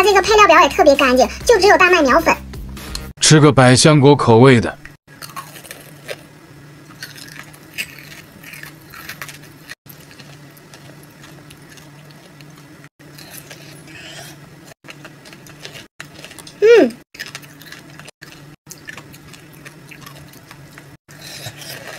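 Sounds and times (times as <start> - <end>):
candy crunching between teeth: 5.1 - 6.3, 6.9 - 13.8, 17.2 - 21.9.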